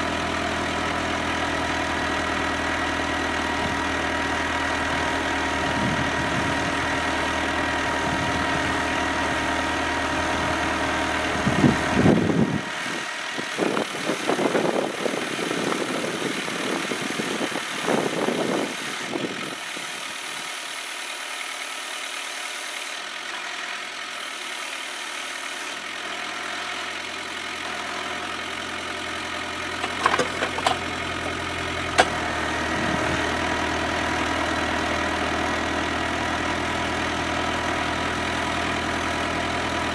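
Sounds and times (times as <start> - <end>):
tractor diesel engine running: 0.0 - 39.9
auger churning soil: 29.3 - 33.6
knocks: 29.8 - 31.4.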